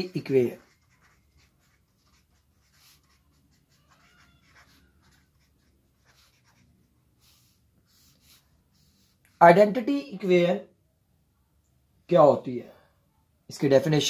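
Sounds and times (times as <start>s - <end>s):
pen scratching on paper: 0.0s - 9.3s.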